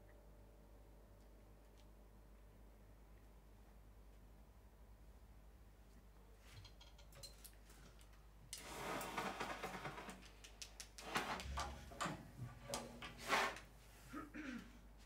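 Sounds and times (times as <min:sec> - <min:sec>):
knocks clicks and scrapes: 0:09.0 - 0:13.7
rush of scraping noise: 0:13.1 - 0:13.7.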